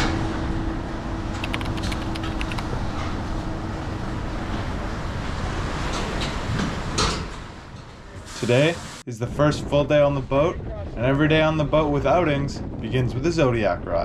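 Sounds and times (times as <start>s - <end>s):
strong wind: 9.1s - 14.0s
wind buffeting microphone: 9.2s - 14.0s.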